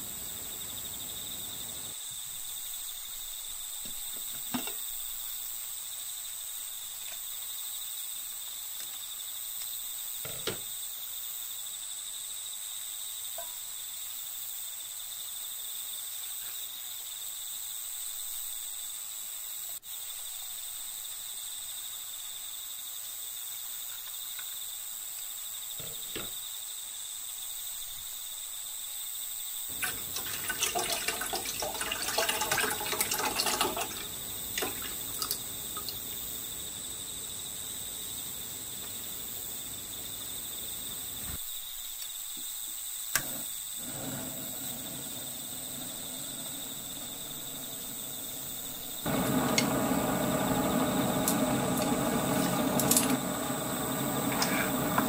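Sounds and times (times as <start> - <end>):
crickets chirring: 0.0 - 55.0
soup splashing into a pot: 29.7 - 36.0.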